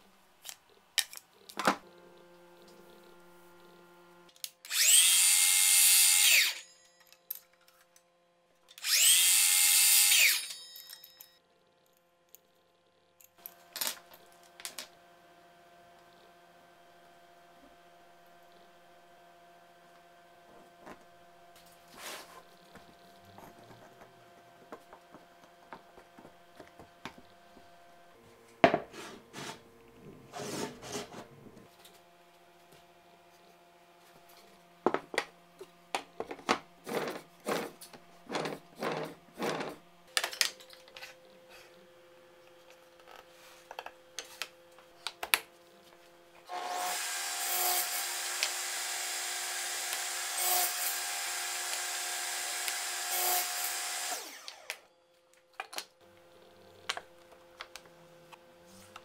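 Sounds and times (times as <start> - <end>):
table saw running: 1.8 - 6.7, 8.8 - 10.6, 46.5 - 54.8.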